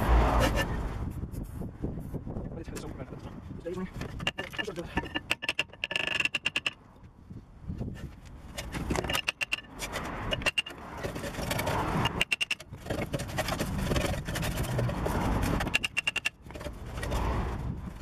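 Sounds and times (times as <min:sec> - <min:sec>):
metal scraping and rubbing: 0:00.0 - 0:01.7, 0:03.9 - 0:06.8, 0:07.8 - 0:18.0
quick metallic clicks: 0:15.4 - 0:16.7.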